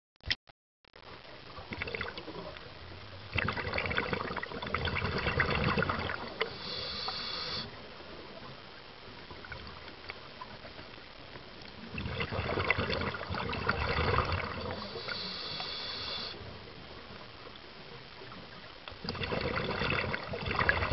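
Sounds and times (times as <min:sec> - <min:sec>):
steady water hiss: 0:01.5 - 0:20.9
diver exhaling bubbles: 0:03.3 - 0:07.7, 0:11.9 - 0:15.8, 0:19.0 - 0:20.9
regulator hiss: 0:06.2 - 0:08.2, 0:14.6 - 0:16.8.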